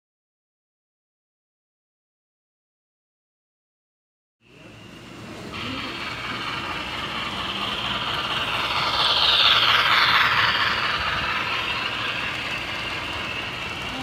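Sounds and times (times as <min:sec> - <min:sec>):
model train whirring and rattling: 0:04.4 - 0:14.0.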